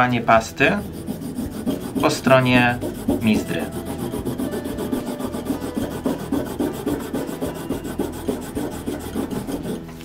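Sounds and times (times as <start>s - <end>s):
compound bar scrubbing leather strop: 0.8s - 9.9s.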